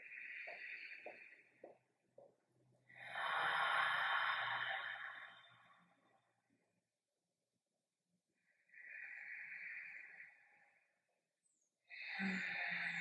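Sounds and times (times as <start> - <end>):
woman breathing deeply: 2.9 - 5.8.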